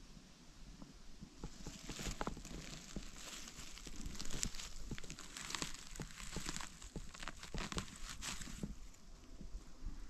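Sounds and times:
footsteps crackling on leaf litter: 0:01.4 - 0:08.9.

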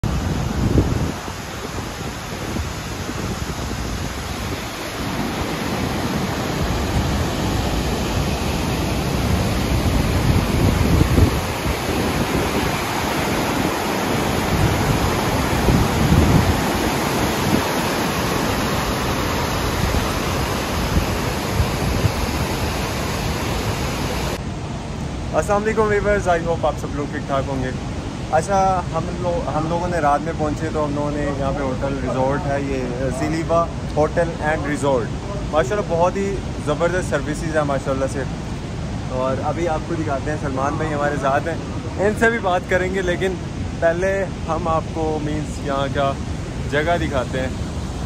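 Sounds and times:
wind buffeting microphone: 0:00.0 - 0:25.4.

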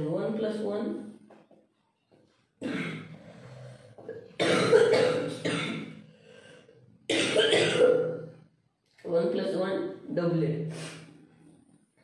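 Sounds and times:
person coughing: 0:02.6 - 0:03.2, 0:04.0 - 0:06.0, 0:07.1 - 0:08.4.

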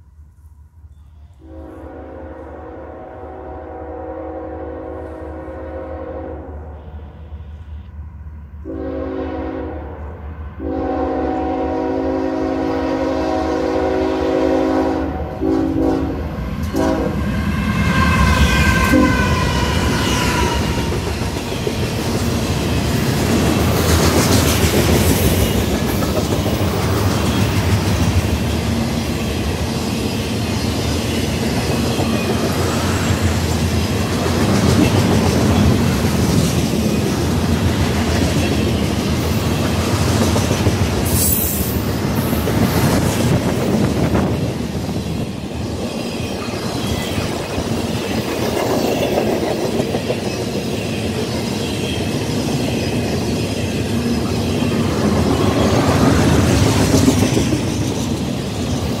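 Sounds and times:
diesel locomotives rumbling: 0:00.0 - 0:59.0
train horn blasts: 0:01.3 - 0:08.0, 0:08.6 - 0:21.0.

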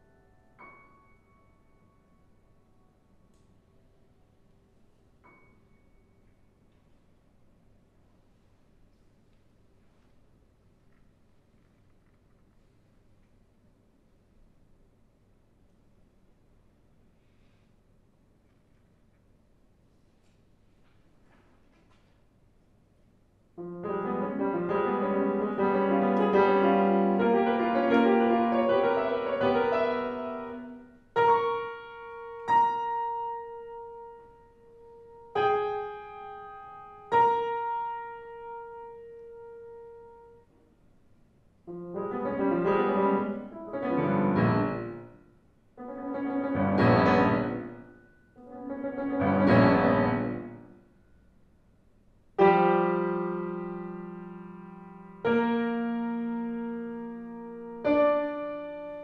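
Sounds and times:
grand piano playing: 0:00.0 - 0:03.2, 0:23.6 - 0:40.5, 0:41.7 - 0:50.8, 0:52.4 - 0:59.0.

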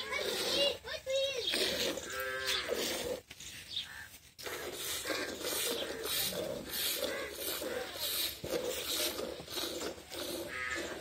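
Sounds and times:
cow mooing: 0:02.1 - 0:02.8.

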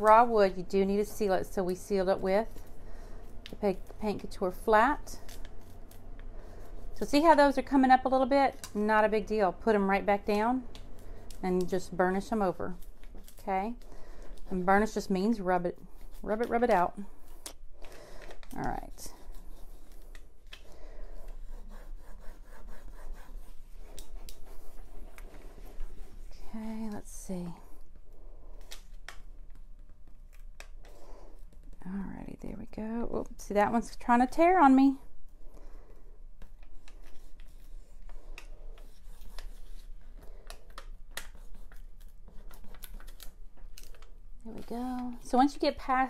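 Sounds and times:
scratchy rubbing strokes: 0:21.0 - 0:26.6.

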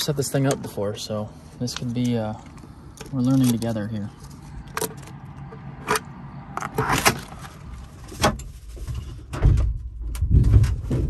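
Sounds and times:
metal frame clunks and rattles: 0:08.1 - 0:11.0.

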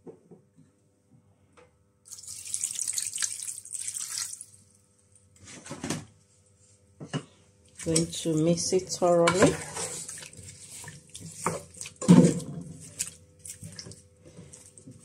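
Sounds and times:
water pouring into saucepan: 0:02.1 - 0:04.6.

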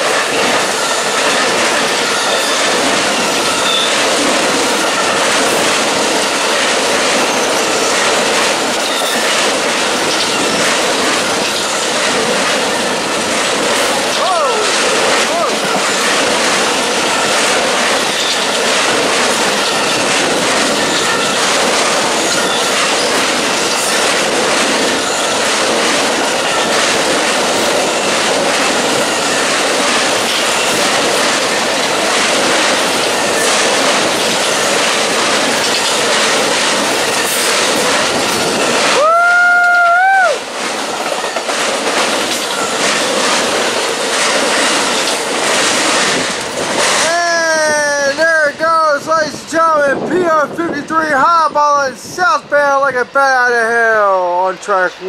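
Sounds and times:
rail joint clicks: 0:00.0 - 0:51.8
train wheels roaring on rail: 0:00.0 - 0:55.0.

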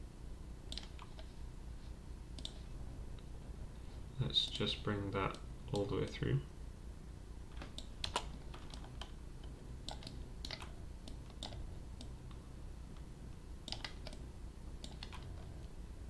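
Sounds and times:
faint low hum: 0:00.0 - 0:16.0
mouse and keyboard clicks: 0:07.6 - 0:09.2, 0:09.8 - 0:12.1, 0:13.7 - 0:14.2, 0:14.8 - 0:15.7.

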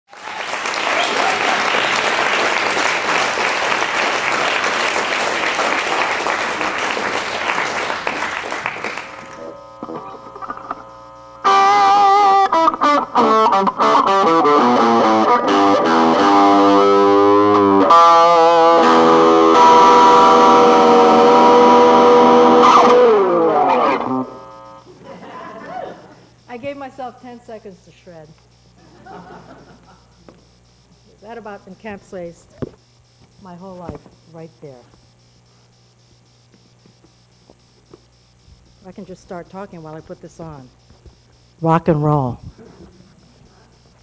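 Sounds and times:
audience applause: 0:00.1 - 0:09.4
solo electric guitar: 0:09.0 - 0:24.8.

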